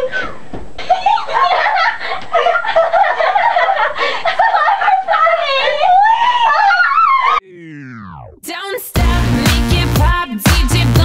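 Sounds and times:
girls laughing and shrieking: 0.0s - 7.4s.

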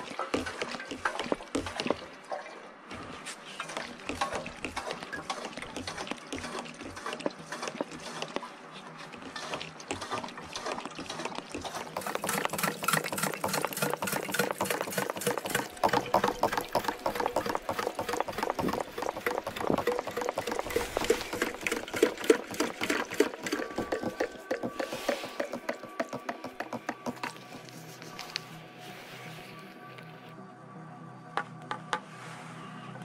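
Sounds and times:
siphon pump gurgling clicks: 3.6s - 28.5s.

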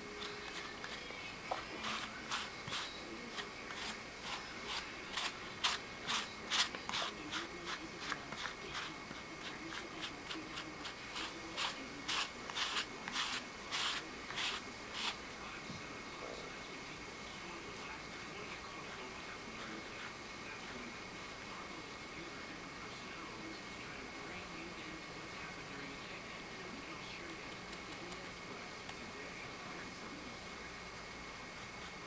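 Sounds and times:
brush scratching through fur: 0.1s - 15.2s, 31.5s - 32.0s.

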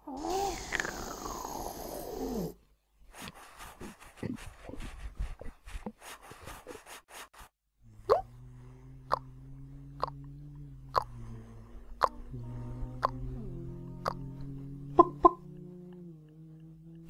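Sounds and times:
pitched sound sliding downward: 12.0s - 17.0s.

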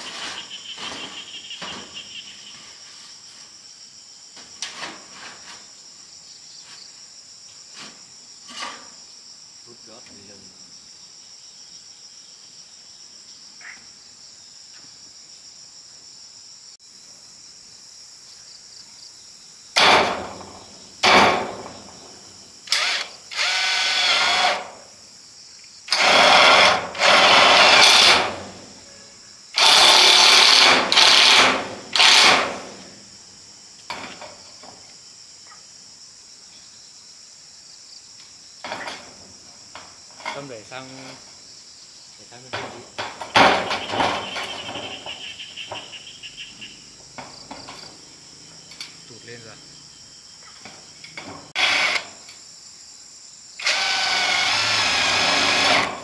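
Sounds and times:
insects buzzing: 0.0s - 56.0s
power drill driving screws: 22.7s - 24.7s, 25.9s - 28.4s, 29.6s - 32.7s, 51.6s - 52.1s, 53.6s - 56.0s.

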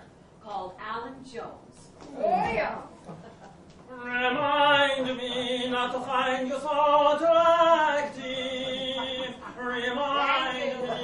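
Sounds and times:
man singing long notes: 3.9s - 11.0s.

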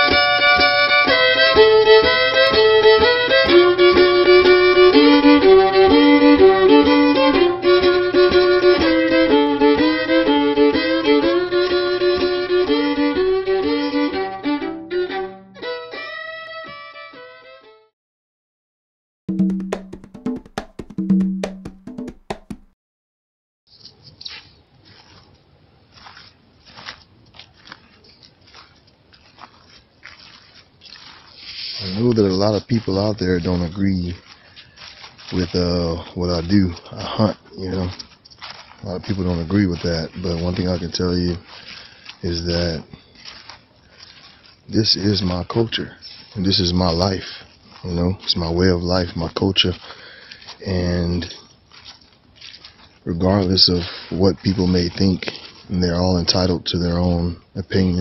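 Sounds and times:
fiddle playing a tune: 0.0s - 17.9s
footsteps crunching dry leaves: 23.7s - 57.2s.

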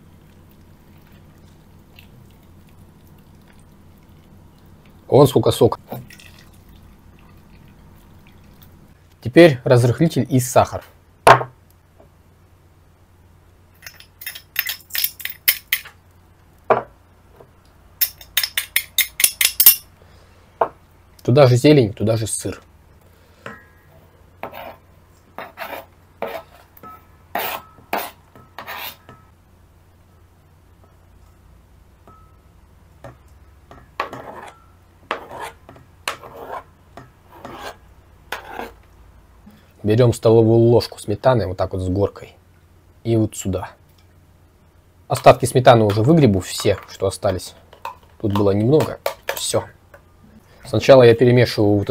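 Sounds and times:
metal spoon clinking on steel bowl: 13.8s - 15.9s, 18.0s - 19.9s.

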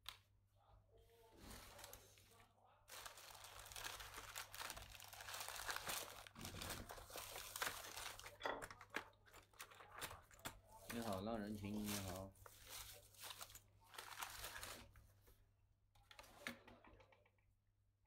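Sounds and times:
crinkly rustling of material: 1.0s - 15.4s.

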